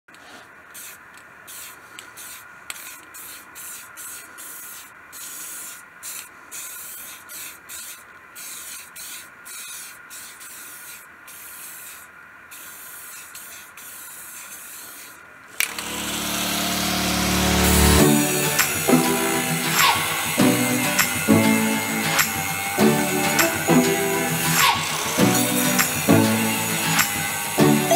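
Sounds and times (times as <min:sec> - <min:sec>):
spray paint can hissing: 0:00.1 - 0:27.9
loud steady sound: 0:15.6 - 0:27.9.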